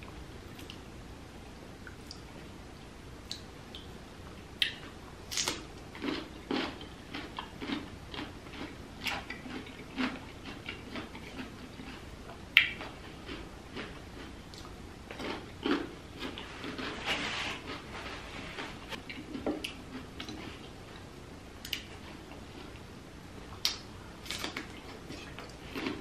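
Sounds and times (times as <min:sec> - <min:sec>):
wet chewing sounds: 0:04.6 - 0:12.0, 0:18.6 - 0:22.8, 0:23.6 - 0:26.0.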